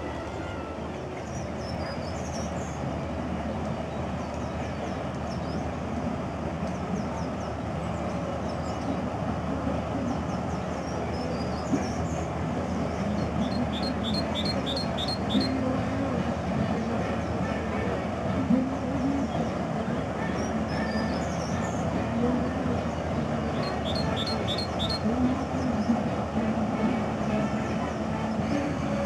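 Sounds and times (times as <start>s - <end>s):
paddle steamer churning rumble: 0.0s - 29.0s
high bird chirps: 13.4s - 15.5s, 23.6s - 25.0s.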